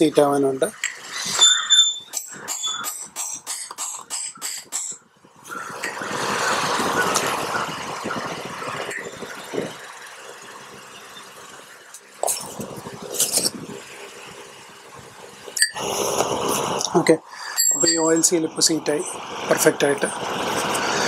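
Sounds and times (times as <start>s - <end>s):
hammer tapping metal spanner: 17.5s - 18.2s.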